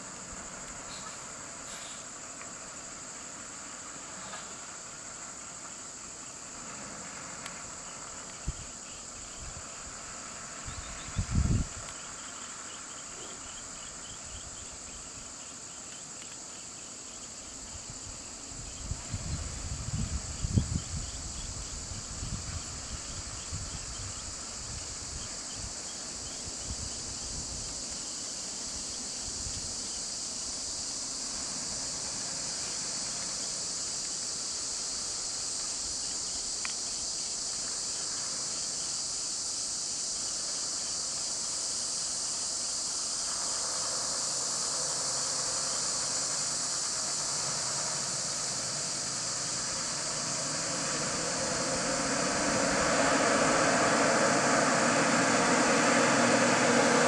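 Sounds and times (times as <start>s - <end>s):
high-pitched insect chorus: 0.0s - 57.0s
low rumbling: 49.2s - 57.0s
low hum: 49.6s - 57.0s.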